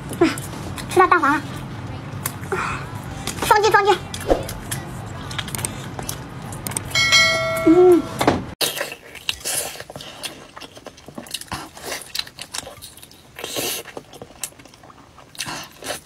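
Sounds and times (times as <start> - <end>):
biting and wet chewing: 4.1 - 7.0, 8.6 - 16.0.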